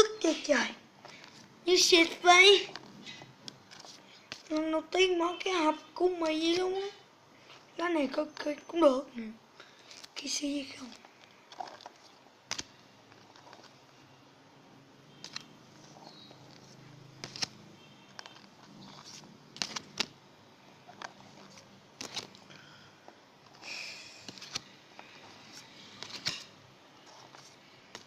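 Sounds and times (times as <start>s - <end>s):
cards rustling: 0.2s - 4.8s, 9.6s - 14.0s, 15.1s - 20.2s, 20.9s - 22.6s, 23.4s - 28.0s
cards clicking and flicking: 3.5s - 4.7s, 10.7s - 13.7s, 15.2s - 17.6s, 18.2s - 20.2s, 20.9s - 22.4s, 23.4s - 28.0s.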